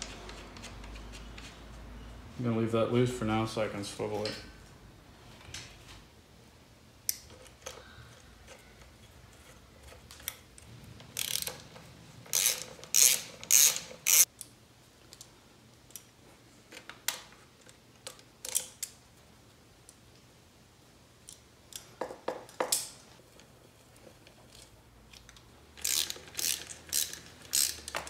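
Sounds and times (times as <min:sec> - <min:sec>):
ratchet wrench clicking: 0:11.2 - 0:11.6, 0:12.3 - 0:14.3, 0:25.8 - 0:28.0.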